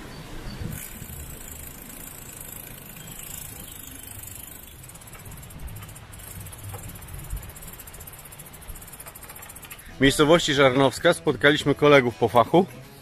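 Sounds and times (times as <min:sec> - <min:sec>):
wind buffeting microphone: 0:00.0 - 0:09.7
road noise rushing: 0:00.0 - 0:10.5.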